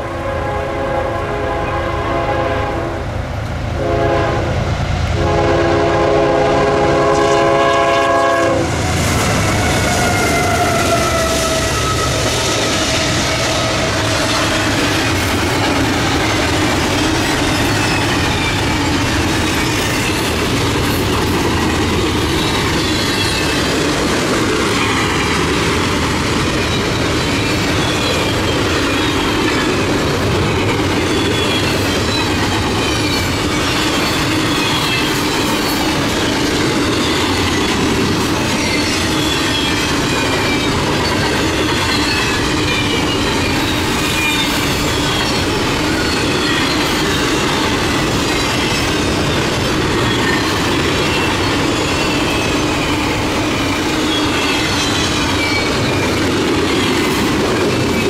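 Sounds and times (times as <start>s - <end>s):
locomotive air horn: 0.0s - 3.1s, 3.8s - 4.6s, 5.2s - 14.4s
train rumbling past: 0.0s - 58.0s
wheels squealing: 8.9s - 58.0s.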